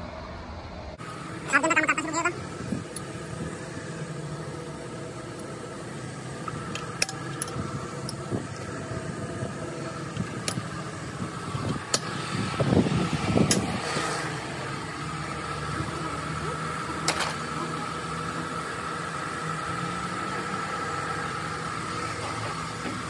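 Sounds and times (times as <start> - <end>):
steady mechanical hum: 0.0 - 23.0.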